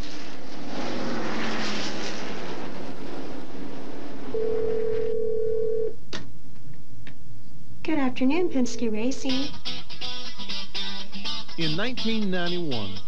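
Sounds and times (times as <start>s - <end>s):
race track noise: 0.0s - 5.0s
telephone ringing: 4.4s - 5.9s.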